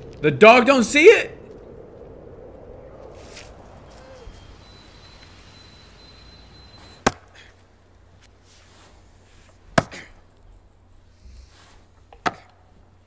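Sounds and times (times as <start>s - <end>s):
axe chopping tree trunk: 9.8s - 10.1s.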